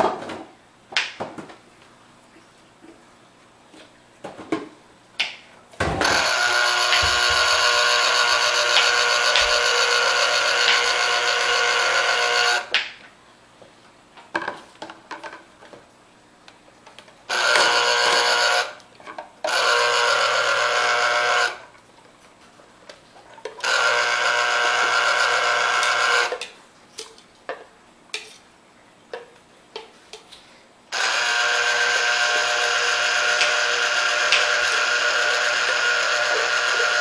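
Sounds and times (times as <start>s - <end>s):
mini food chopper whirring: 6.0s - 12.7s, 17.3s - 18.8s, 19.5s - 21.6s, 23.6s - 26.4s, 30.9s - 37.0s.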